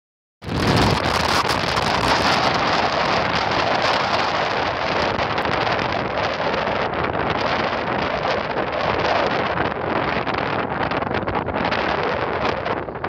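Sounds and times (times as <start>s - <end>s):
wind buffeting microphone: 0.4s - 13.0s
surf breaking: 0.5s - 10.3s.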